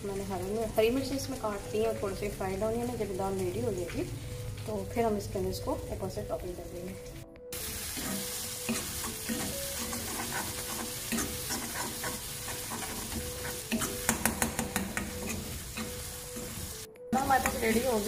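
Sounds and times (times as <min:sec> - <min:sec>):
masala sizzling in a pan: 0:00.0 - 0:18.0
metal spoon scraping and tapping pan: 0:07.9 - 0:17.9.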